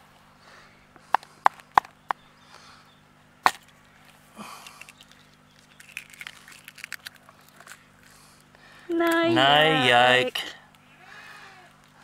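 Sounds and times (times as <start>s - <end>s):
egg cracking: 4.5s - 7.9s.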